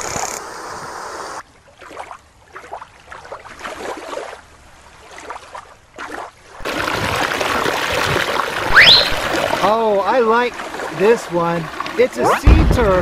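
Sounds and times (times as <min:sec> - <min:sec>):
faint water splashing: 0:01.4 - 0:13.0
waterfall rushing: 0:08.6 - 0:10.2.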